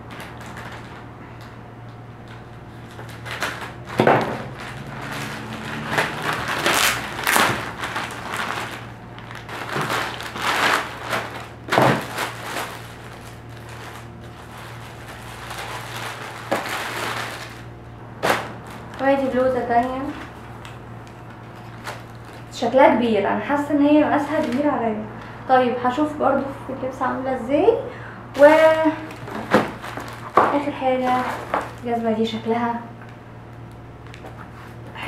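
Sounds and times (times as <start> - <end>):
plastic packaging crinkling: 0.0 - 22.7, 24.0 - 25.3, 28.4 - 32.5, 33.5 - 34.9.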